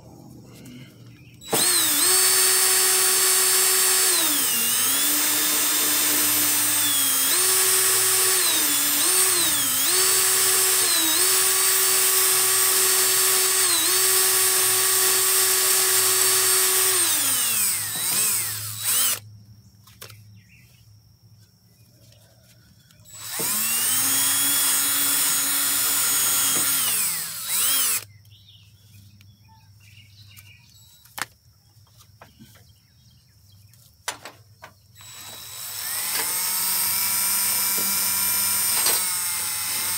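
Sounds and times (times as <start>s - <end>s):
drill spinning wire brush: 1.4s - 19.2s, 23.1s - 28.1s, 35.0s - 39.9s.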